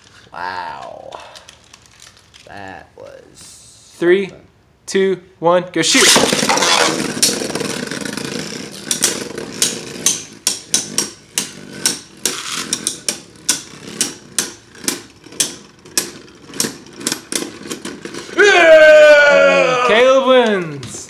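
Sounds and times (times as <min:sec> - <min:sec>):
spinning tops whirring: 0:05.9 - 0:20.7
spinning tops clacking together: 0:06.0 - 0:18.3.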